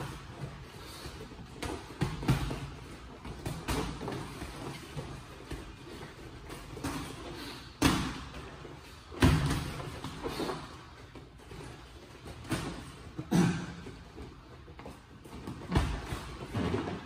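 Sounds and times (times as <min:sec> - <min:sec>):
boxing gloves punching: 0:00.0 - 0:08.4, 0:09.2 - 0:10.6.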